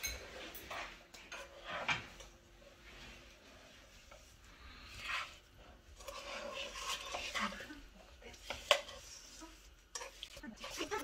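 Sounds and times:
utensil scraping frying pan: 0.0s - 11.0s.

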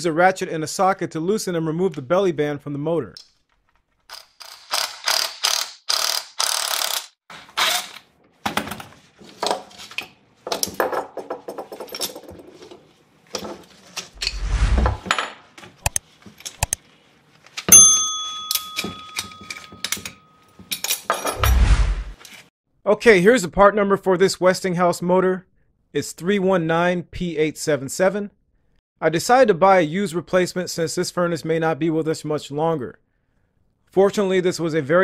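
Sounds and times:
bell-like chime ringing: 17.7s - 20.6s
metal parts clanking on wood: 18.6s - 21.6s.

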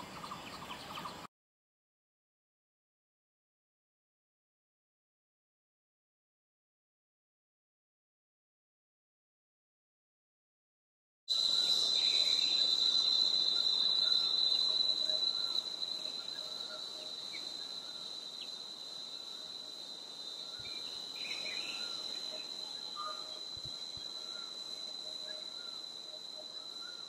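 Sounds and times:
faint bird chirps: 0.0s - 1.3s, 11.3s - 27.0s
high-pitched insect drone: 11.3s - 27.0s.

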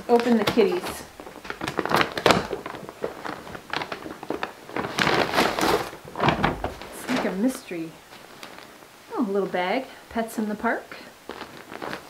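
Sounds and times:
tissue paper rustling and crinkling: 0.0s - 9.4s, 10.9s - 12.0s.

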